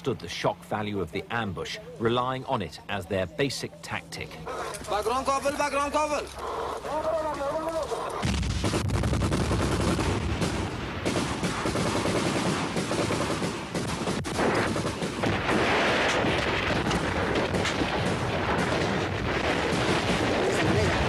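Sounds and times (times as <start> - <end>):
automatic gunfire: 8.2 - 21.0.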